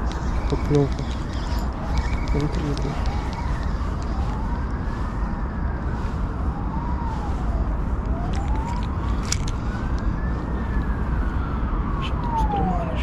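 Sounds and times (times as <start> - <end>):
siren wailing: 0.0 - 13.0.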